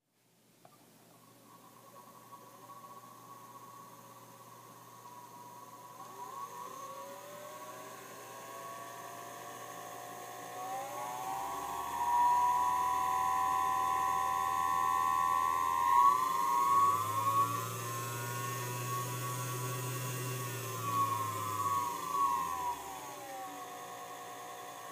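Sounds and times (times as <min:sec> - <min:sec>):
sewing machine motor whirring: 0:05.1 - 0:24.9.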